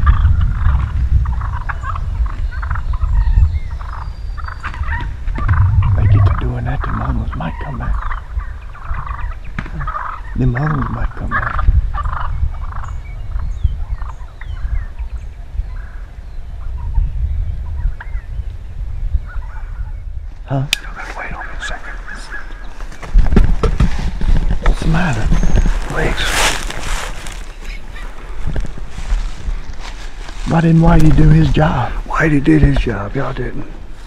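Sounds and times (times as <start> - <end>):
steady low rumble: 0.0 - 9.2
turkeys gobbling: 0.0 - 13.0, 21.2 - 23.0.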